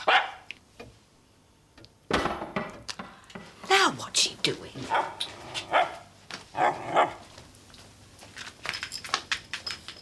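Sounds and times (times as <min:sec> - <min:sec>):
small dog barking: 0:00.0 - 0:00.5, 0:04.9 - 0:07.2.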